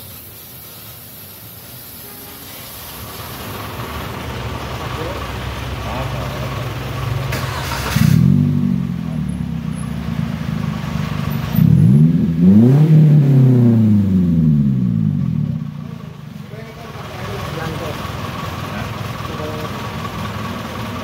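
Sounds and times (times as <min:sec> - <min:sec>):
brief hiss: 0:00.0 - 0:03.6, 0:07.3 - 0:08.3
pickup engine idling and revving: 0:02.9 - 0:21.0.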